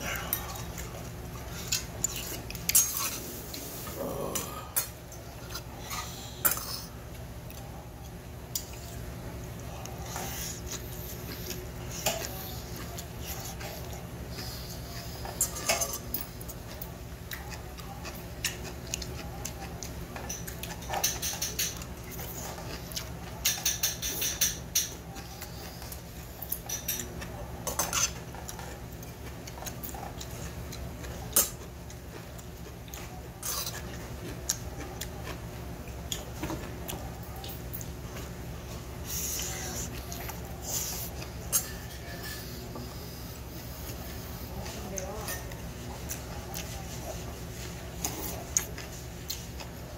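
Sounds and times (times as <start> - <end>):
chewing and slurping: 0.0 - 49.9
utensils clicking on metal bowl: 23.4 - 24.9.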